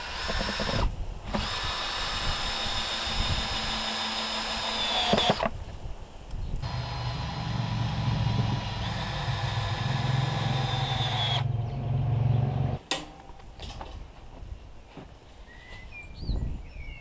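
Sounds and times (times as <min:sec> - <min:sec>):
motor humming and whining: 0:06.6 - 0:12.8.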